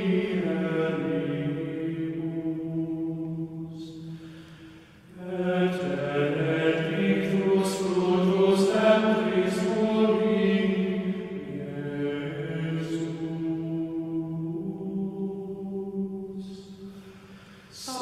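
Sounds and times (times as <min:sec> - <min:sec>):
voices chanting a hymn: 0:00.0 - 0:18.0.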